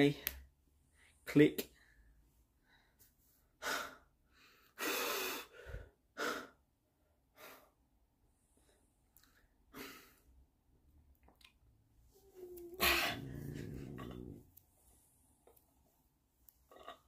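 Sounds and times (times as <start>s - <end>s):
man breathing hard: 1.8s - 6.6s.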